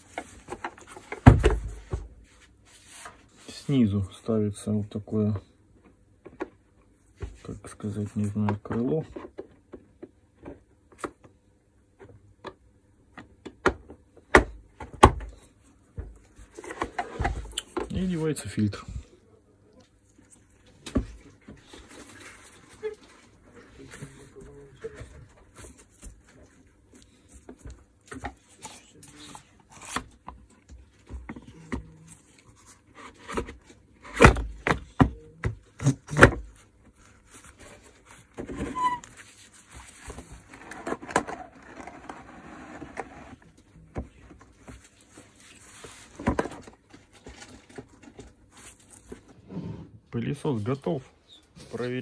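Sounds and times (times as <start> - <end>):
plastic scraping: 38.3 - 43.4.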